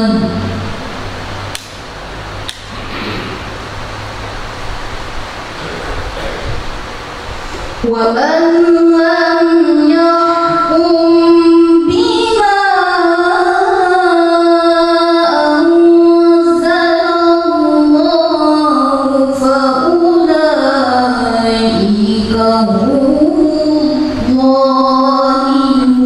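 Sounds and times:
woman reciting melodically: 0:00.0 - 0:01.5, 0:07.8 - 0:26.0.

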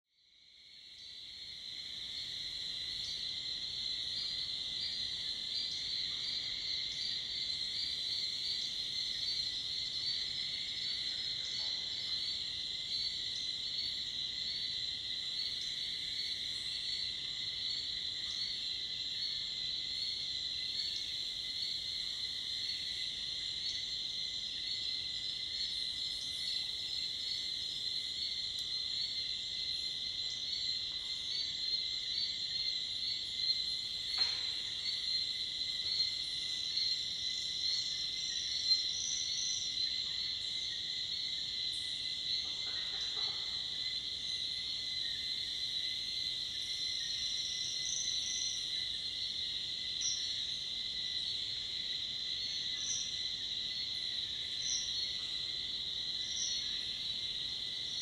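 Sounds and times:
lower-pitched insect band: 0:00.2 - 0:58.0.

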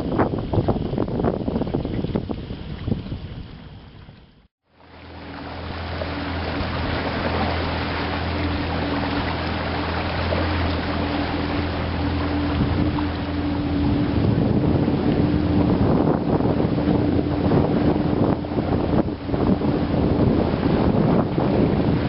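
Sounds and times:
wind buffeting microphone: 0:00.0 - 0:04.4, 0:05.2 - 0:22.0
boat motor humming: 0:00.0 - 0:22.0
water rushing along hull: 0:00.0 - 0:22.0.

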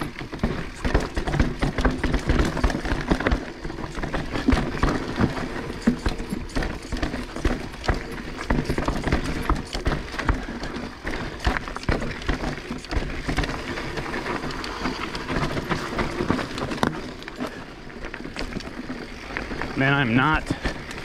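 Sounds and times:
bike knocks and clatters: 0:00.0 - 0:19.8, 0:20.4 - 0:21.0
rushing tyre noise on dirt: 0:00.0 - 0:21.0.

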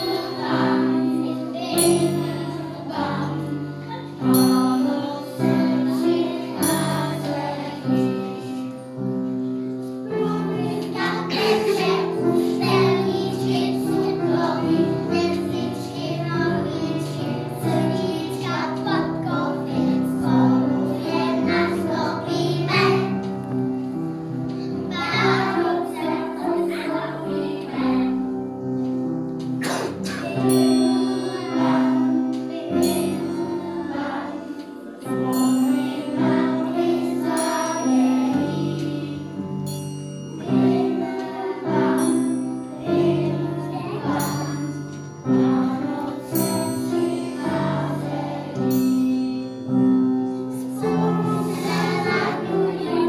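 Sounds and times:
children singing: 0:00.0 - 0:39.4, 0:40.4 - 0:49.7, 0:50.5 - 0:53.0
music of held notes: 0:00.0 - 0:53.0
short high tinkles: 0:04.1 - 0:15.2, 0:30.2 - 0:52.9.

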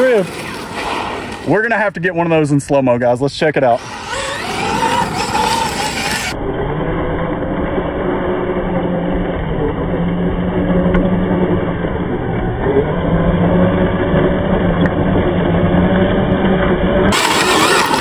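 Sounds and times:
electric motor whining: 0:03.8 - 0:18.0.

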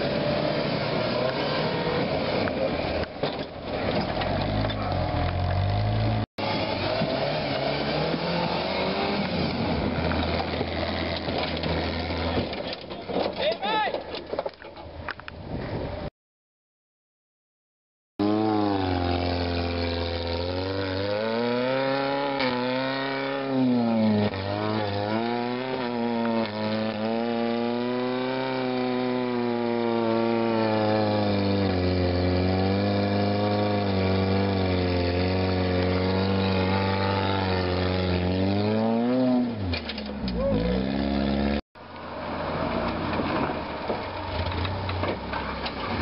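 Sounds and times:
buggy engine revving hard: 0:00.0 - 0:03.1, 0:03.7 - 0:12.6, 0:18.2 - 0:41.6.

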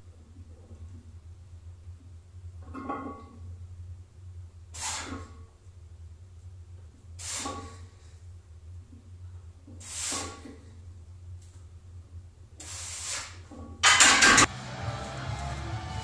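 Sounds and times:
steady low hum: 0:00.0 - 0:09.8, 0:10.4 - 0:12.7.

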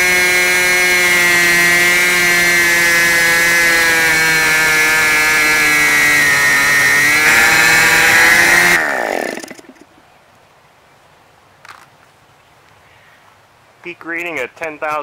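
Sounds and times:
model engine running: 0:00.0 - 0:09.9
propeller spinning down: 0:04.2 - 0:10.0.

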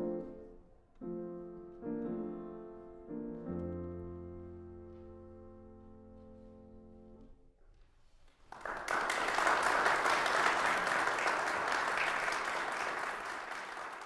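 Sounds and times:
audience applauding: 0:08.5 - 0:14.0.

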